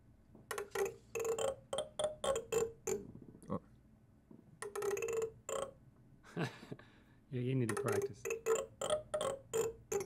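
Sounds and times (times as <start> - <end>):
plastic comb strummed: 4.6 - 5.8, 7.6 - 10.0.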